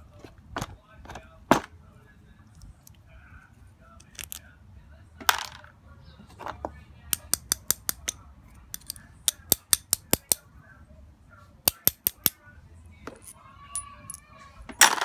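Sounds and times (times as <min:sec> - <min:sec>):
metal parts clicking: 0:04.0 - 0:04.4, 0:07.2 - 0:10.4, 0:11.7 - 0:12.4
metal parts scraping: 0:08.8 - 0:09.0.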